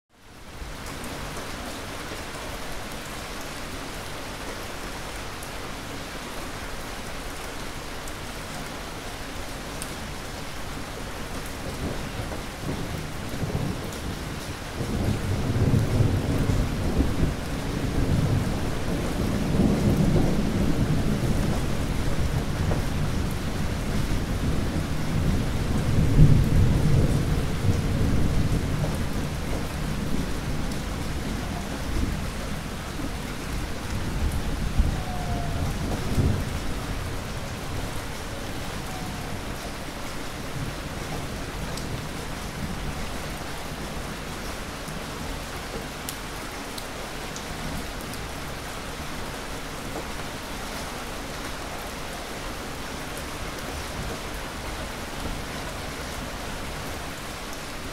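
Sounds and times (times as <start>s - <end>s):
heavy rain falling: 0.1s - 57.9s
thunder rumbling: 11.8s - 43.0s.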